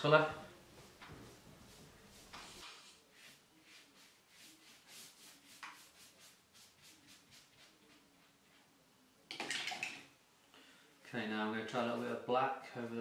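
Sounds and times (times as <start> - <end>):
paintbrush strokes on paper: 0.8 - 9.0, 11.6 - 13.0.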